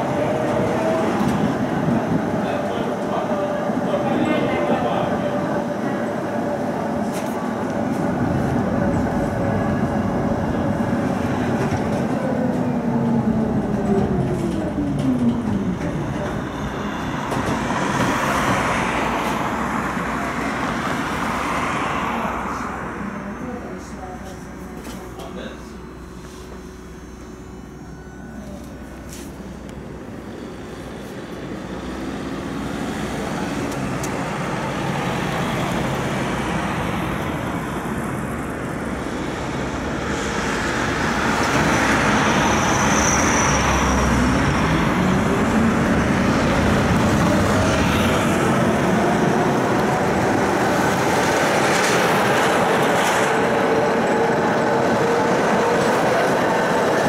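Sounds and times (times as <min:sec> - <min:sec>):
tram wheels rumbling on rails: 0:00.0 - 0:25.5, 0:28.4 - 0:57.0
faint traction motor whine: 0:22.9 - 0:34.2.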